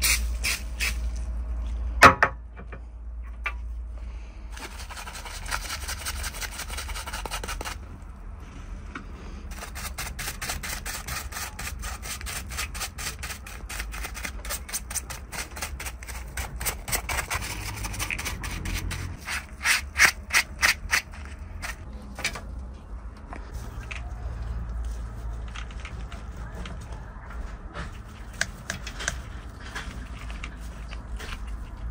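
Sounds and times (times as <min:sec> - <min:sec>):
bristle brush scrubbing: 0:04.6 - 0:08.0, 0:09.5 - 0:21.8.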